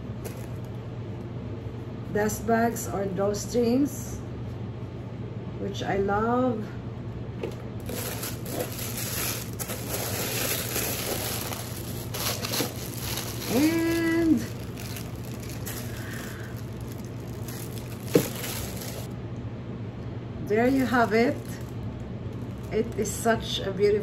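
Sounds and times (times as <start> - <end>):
air conditioner hum: 0.0 - 24.0
tissue paper crinkling: 7.8 - 19.1, 20.7 - 22.8.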